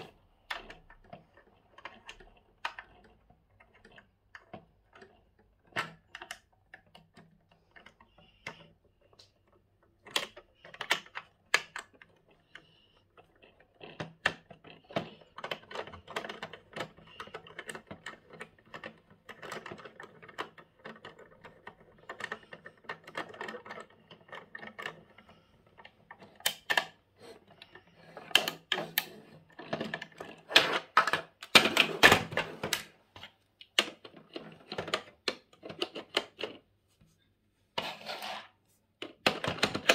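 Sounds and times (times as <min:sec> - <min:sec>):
plastic clicking and scraping: 0:00.0 - 0:36.8, 0:37.8 - 0:39.9
plastic parts clattering on table: 0:26.0 - 0:36.6, 0:37.8 - 0:39.9.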